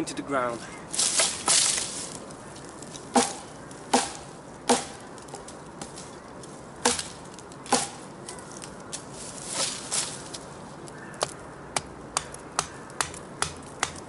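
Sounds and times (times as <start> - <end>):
blade chopping wooden stick: 3.1 - 5.0, 6.8 - 8.0, 11.2 - 14.0.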